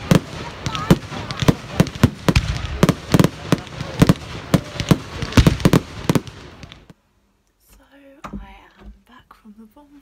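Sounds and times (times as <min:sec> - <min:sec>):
fireworks bangs: 0:00.0 - 0:07.0
fireworks crackling: 0:00.0 - 0:07.0.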